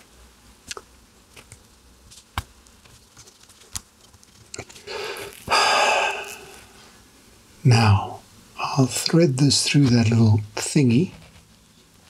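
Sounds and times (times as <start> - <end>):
rush of breath: 4.9 - 6.9.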